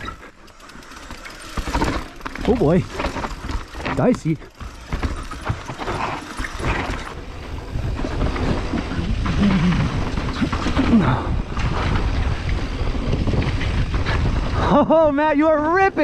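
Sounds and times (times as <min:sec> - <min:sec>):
bike tyres rumbling on dirt: 0:00.0 - 0:16.0
wind buffeting microphone: 0:07.0 - 0:16.0.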